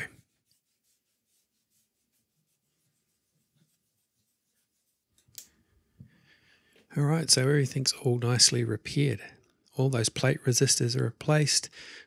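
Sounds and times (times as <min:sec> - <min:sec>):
cloth rubbing on metal: 0:00.0 - 0:05.2.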